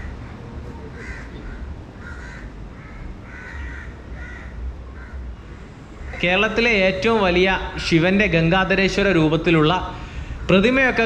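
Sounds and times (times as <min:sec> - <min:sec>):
crows cawing: 0:00.0 - 0:06.4
steady low rumble: 0:00.0 - 0:11.0.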